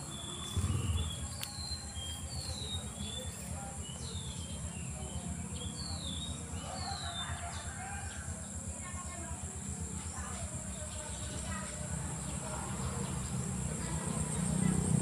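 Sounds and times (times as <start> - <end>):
birds whistling: 0.0 - 7.5
low rumble: 0.4 - 2.4.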